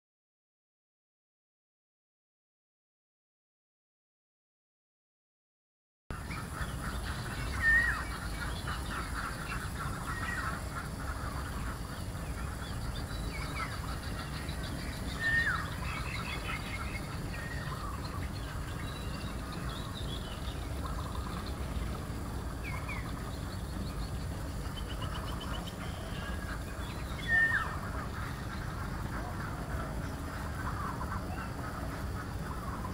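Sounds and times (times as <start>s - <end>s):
steady low rumble: 6.1s - 32.9s
waterfowl honking: 6.2s - 20.2s, 24.4s - 32.9s.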